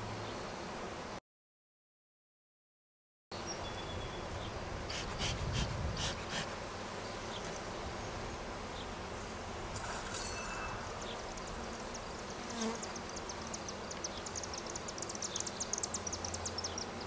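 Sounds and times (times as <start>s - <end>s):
bees buzzing: 0.0s - 1.2s, 3.4s - 17.0s
bee smoker bellows puffing: 4.5s - 12.8s.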